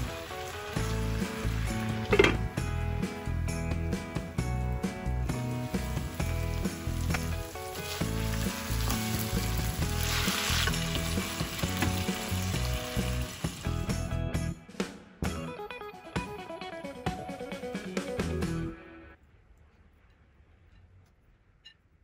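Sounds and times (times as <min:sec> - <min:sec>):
chicken sizzling in a pan: 0:00.0 - 0:03.3, 0:05.2 - 0:14.0
background music: 0:00.0 - 0:19.2.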